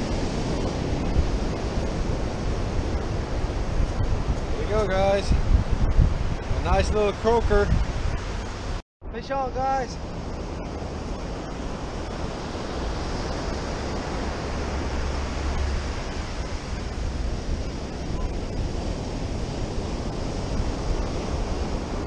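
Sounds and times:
ocean surf breaking on beach: 0:00.0 - 0:22.0
wind rumble on microphone: 0:00.0 - 0:22.0.

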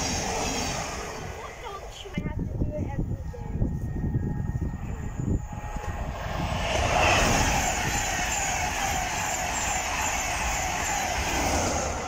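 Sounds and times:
passenger train passing: 0:00.0 - 0:12.0.

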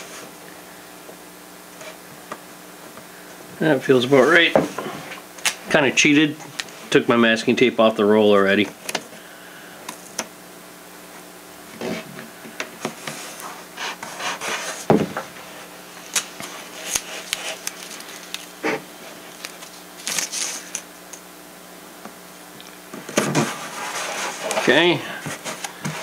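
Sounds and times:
faint steady hum: 0:00.0 - 0:26.0
foam rubbing and light knocks: 0:23.1 - 0:26.0.

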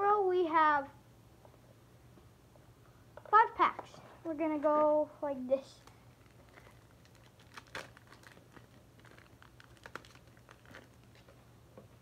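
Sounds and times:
card packs rustling: 0:05.7 - 0:11.4
sharp clicks of packs: 0:05.8 - 0:11.4.

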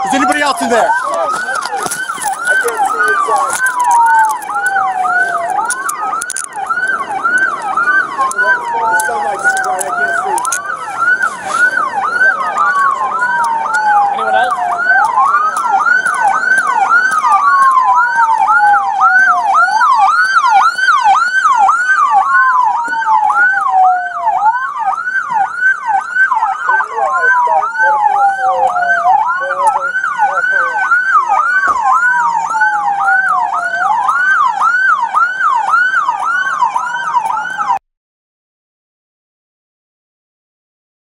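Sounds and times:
police siren fast yelp: 0:00.0 - 0:37.8
police siren slow wail: 0:00.0 - 0:37.8.

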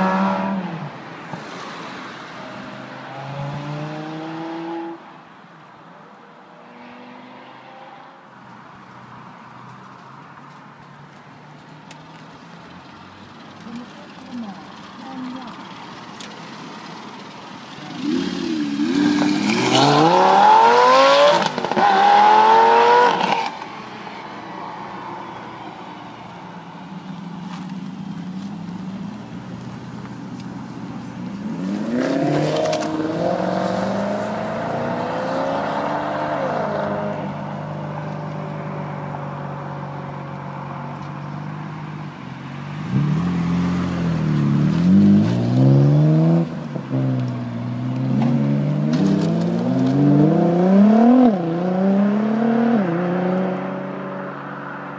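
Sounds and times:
sports car engines accelerating: 0:00.0 - 0:05.0, 0:12.0 - 0:54.9.

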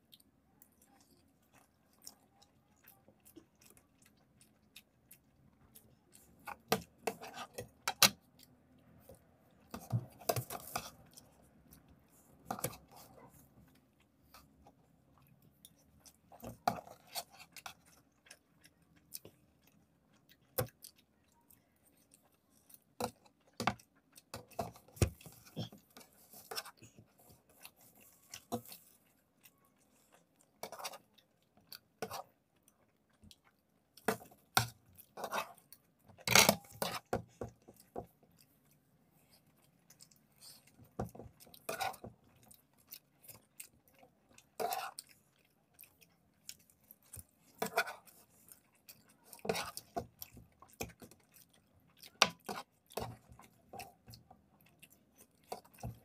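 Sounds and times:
people eating with mouth sounds: 0:00.0 - 0:56.0.

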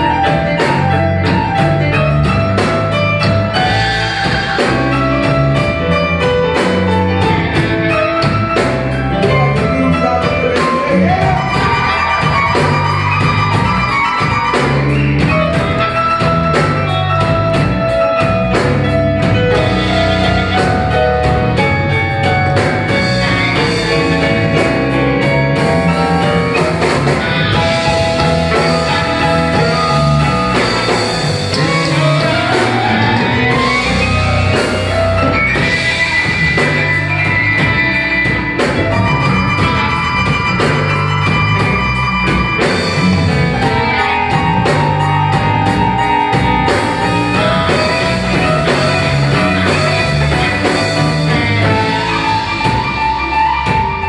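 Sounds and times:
drum kit beat: 0:00.0 - 0:54.0
electric blues band playing: 0:00.0 - 0:54.0
harmonica solo: 0:07.9 - 0:18.0, 0:22.8 - 0:54.0.

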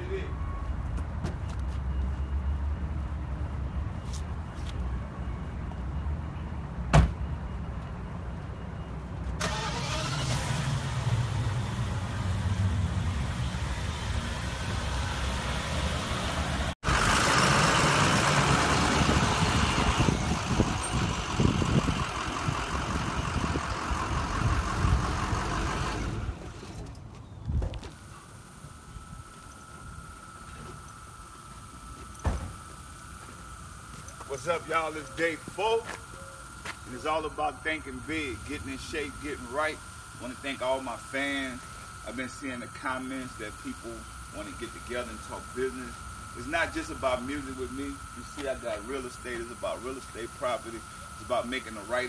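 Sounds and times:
car door shutting thud: 0:06.9 - 0:07.2, 0:32.2 - 0:32.6
low engine hum: 0:08.8 - 0:34.4
rush of engine and wind noise: 0:09.4 - 0:28.0.

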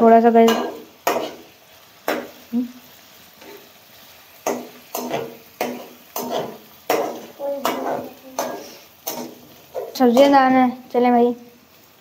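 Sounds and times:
meat sizzling in oil: 0:00.0 - 0:12.0
metal spatula scraping a pot: 0:04.4 - 0:10.3.

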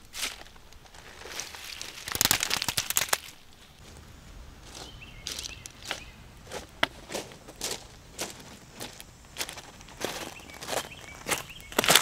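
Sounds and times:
rustling: 0:00.0 - 0:12.0
seaweed tearing and crackling: 0:01.1 - 0:03.4.

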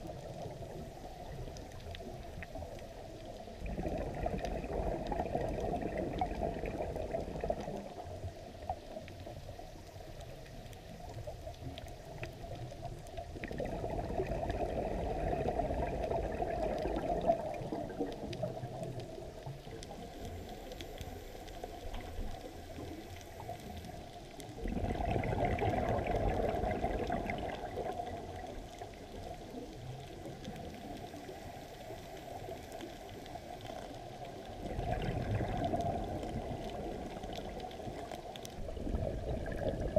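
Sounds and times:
bubbles rushing from regulator: 0:00.0 - 0:09.5, 0:10.5 - 0:20.0, 0:24.4 - 0:31.4, 0:33.4 - 0:39.9
steady underwater noise: 0:00.0 - 0:39.9.

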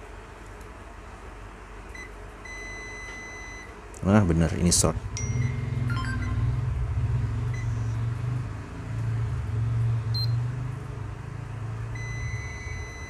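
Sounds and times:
low steady hum: 0:00.0 - 0:13.0
multimeter continuity buzzer beeping: 0:02.0 - 0:03.7, 0:11.9 - 0:13.0.

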